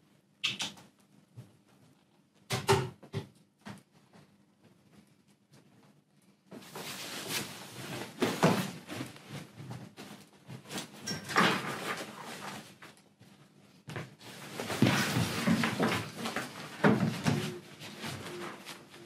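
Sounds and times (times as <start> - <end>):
feet shuffling and scraping: 6.5 - 11.0, 12.0 - 19.0.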